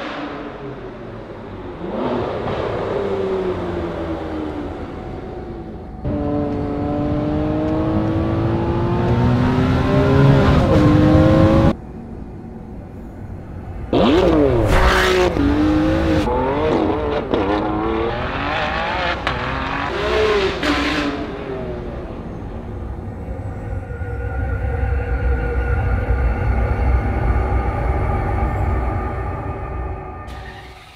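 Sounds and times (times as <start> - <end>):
sports car engine revving: 6.0 - 11.8, 13.9 - 22.4.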